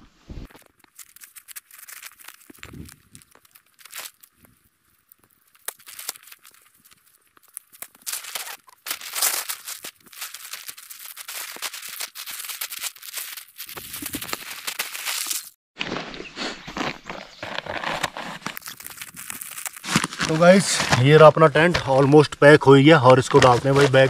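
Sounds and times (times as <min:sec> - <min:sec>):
tent fabric rustling: 0:08.0 - 0:21.7.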